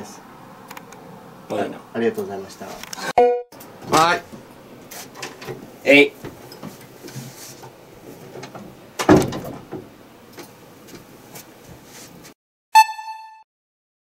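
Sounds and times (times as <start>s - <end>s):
door shutting thud: 9.0s - 9.9s
short electronic tone: 12.8s - 13.5s.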